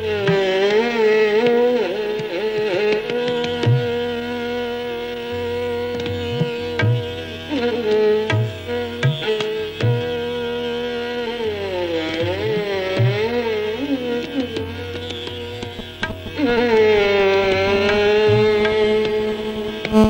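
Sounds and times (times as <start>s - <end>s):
ornamented melody: 14.0s - 20.0s.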